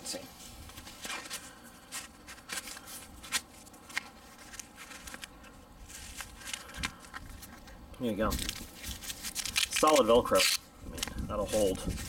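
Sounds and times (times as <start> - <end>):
fabric sheath rustling: 8.3 - 12.0.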